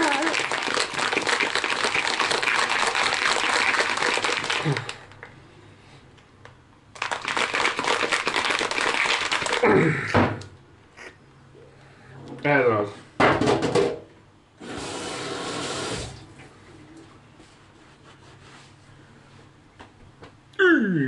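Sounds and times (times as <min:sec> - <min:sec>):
ice cubes rattling in shaker cup: 0:00.0 - 0:05.0, 0:07.0 - 0:09.6.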